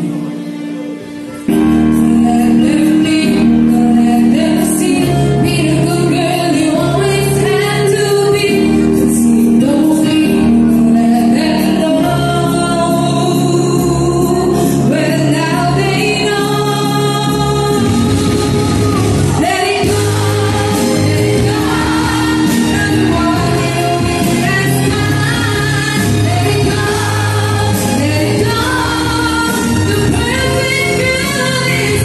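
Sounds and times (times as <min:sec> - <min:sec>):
people singing with vibrato: 0:00.0 - 0:32.0
brass band playing: 0:17.7 - 0:32.0.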